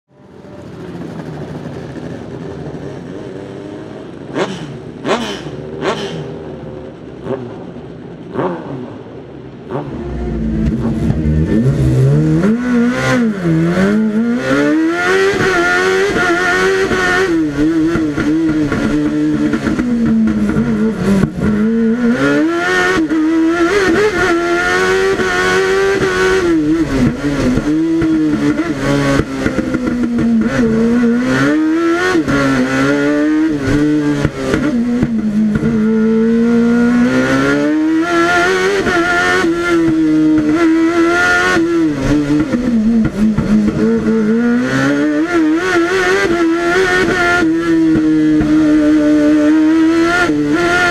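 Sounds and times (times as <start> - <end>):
racing engine revving: 7.2 - 50.9.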